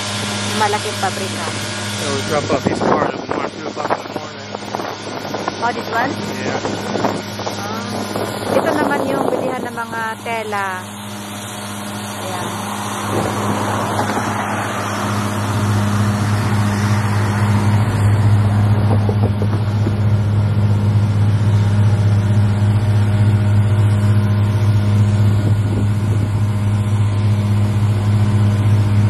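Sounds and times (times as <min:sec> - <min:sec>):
loud low machine hum: 0:00.0 - 0:29.0
car driving past: 0:12.4 - 0:20.4.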